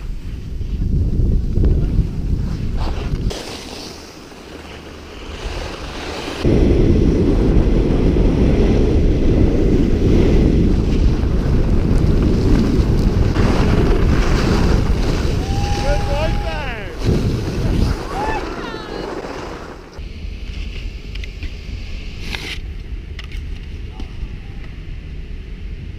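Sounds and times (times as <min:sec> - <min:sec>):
wind buffeting microphone: 0:00.0 - 0:03.3, 0:05.2 - 0:20.0.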